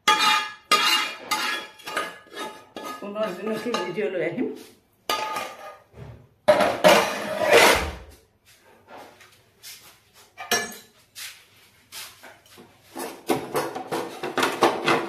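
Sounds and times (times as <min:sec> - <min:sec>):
dishes clattering: 0:00.0 - 0:04.0, 0:05.1 - 0:08.0, 0:10.4 - 0:10.9, 0:13.0 - 0:15.0.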